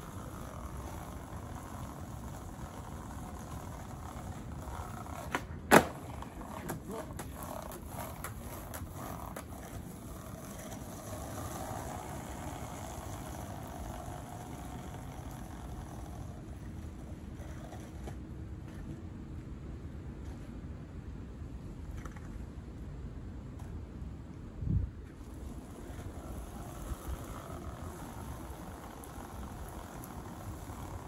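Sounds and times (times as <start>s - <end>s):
skateboard clacking: 0.0s - 18.3s, 25.2s - 31.0s
skateboard rolling rumble: 0.0s - 31.0s.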